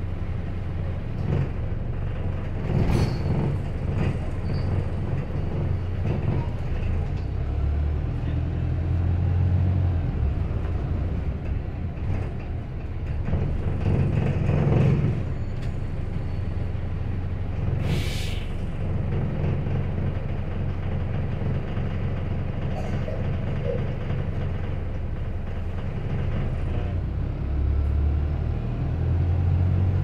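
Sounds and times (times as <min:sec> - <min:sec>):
bus engine droning: 0:00.0 - 0:30.0
compressed air hiss: 0:17.8 - 0:18.5.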